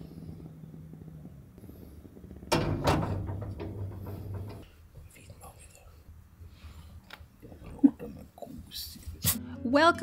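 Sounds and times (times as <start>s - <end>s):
moka pot clanking on grate: 2.5s - 4.7s.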